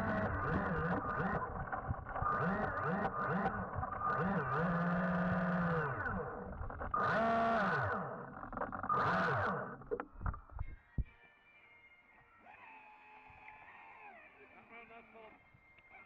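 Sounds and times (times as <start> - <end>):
electric motor whining underwater: 0.0 - 10.8.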